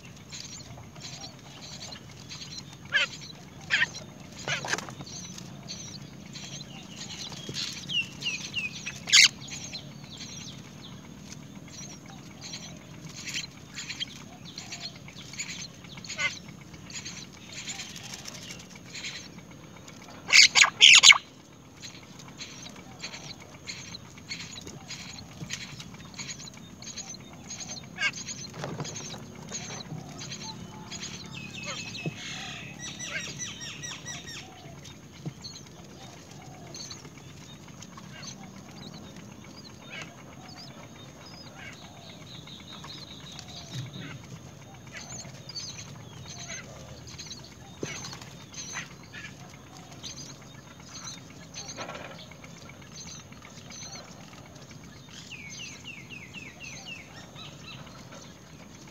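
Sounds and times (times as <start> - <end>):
rustling at nest: 0.0 - 41.6
birds calling: 0.0 - 58.9.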